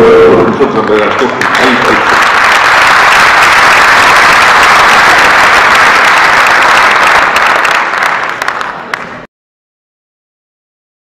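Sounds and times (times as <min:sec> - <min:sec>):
audience applauding: 0:00.8 - 0:09.3.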